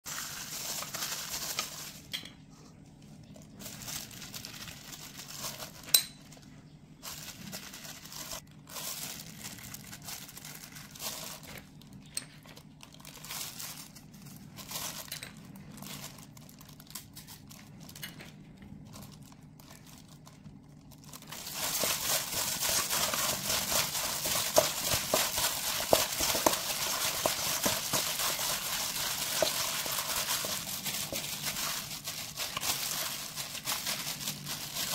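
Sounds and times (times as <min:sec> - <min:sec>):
plastic glove crinkling: 0:00.0 - 0:02.2, 0:03.0 - 0:34.9
wet crackles of mixing meat: 0:07.3 - 0:34.9.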